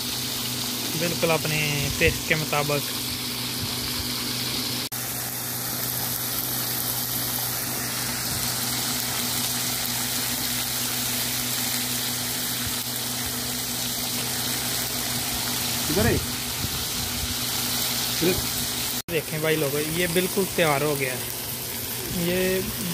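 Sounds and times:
steak sizzling on a griddle: 0.0s - 22.9s.

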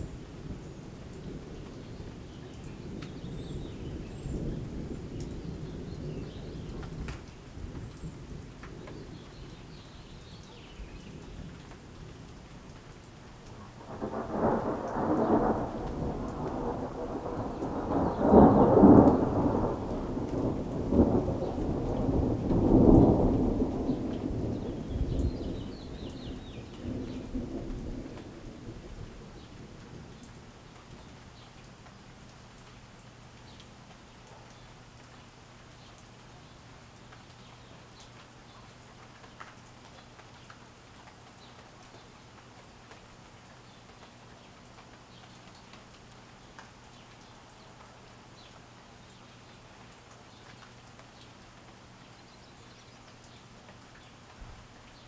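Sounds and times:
rain falling: 0.0s - 55.0s
thunder rumbling: 13.8s - 30.1s.

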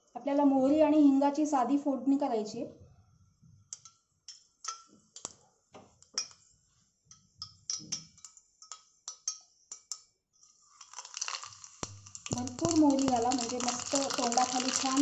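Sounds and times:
hot oil crackling in a pan: 10.4s - 15.0s.

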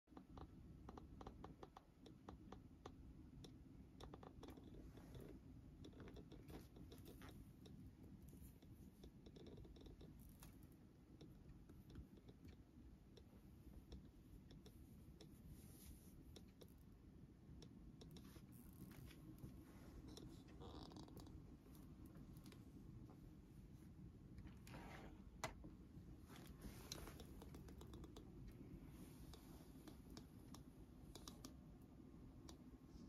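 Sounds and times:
faint small clicks: 26.3s - 32.7s.

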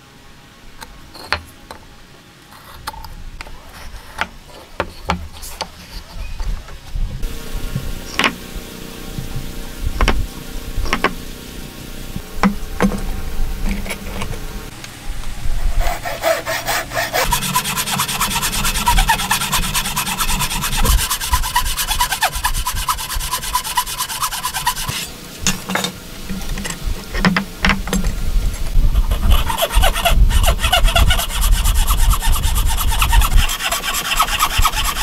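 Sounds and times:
hand saw cutting wood: 9.4s - 11.2s, 15.7s - 25.2s, 29.0s - 35.0s.

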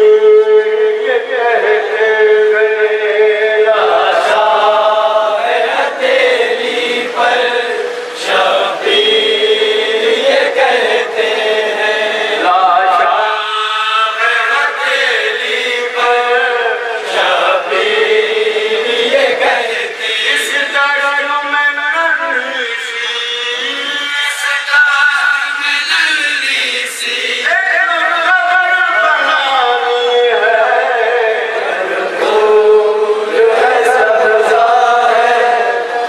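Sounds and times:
man chanting lament: 0.0s - 36.0s
group of men chanting: 1.0s - 21.1s, 23.4s - 36.0s.

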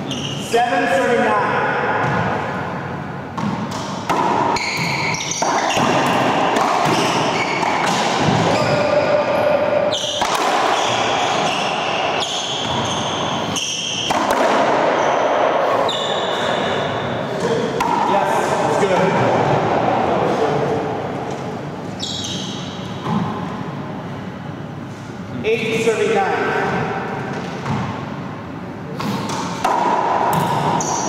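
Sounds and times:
shoes squeaking on hardwood floor: 4.6s - 6.0s, 6.8s - 7.9s, 9.9s - 14.1s, 22.0s - 22.8s
ball cracking off racquets and walls: 10.0s - 15.3s.

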